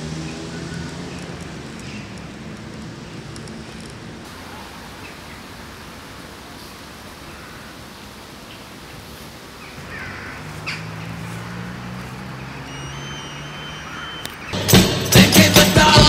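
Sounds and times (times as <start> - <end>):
faint short calls: 9.7 - 14.6.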